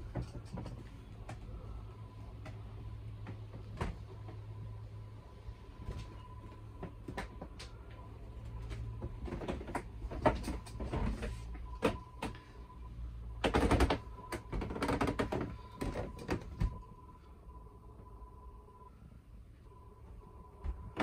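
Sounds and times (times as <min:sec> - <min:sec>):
faint steady high tone: 0:01.3 - 0:03.2, 0:04.1 - 0:09.0, 0:15.5 - 0:21.0
knocks and thuds: 0:08.9 - 0:12.5, 0:13.4 - 0:16.8.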